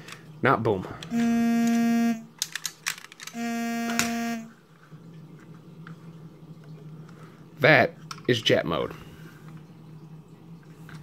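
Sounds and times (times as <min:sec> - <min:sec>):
long steady tones: 0:01.1 - 0:02.3, 0:03.3 - 0:04.6
plastic toy parts clicking: 0:01.1 - 0:04.1.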